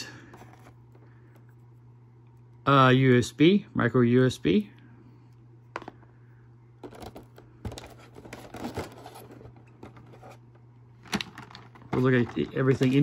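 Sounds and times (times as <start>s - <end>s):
steady low hum: 0.0s - 13.0s
plastic tray rustling and clicking: 6.8s - 10.4s, 11.0s - 13.0s.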